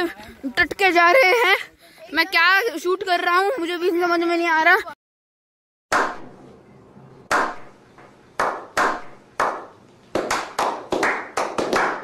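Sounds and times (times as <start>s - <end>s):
group slow clapping: 8.4s - 12.0s.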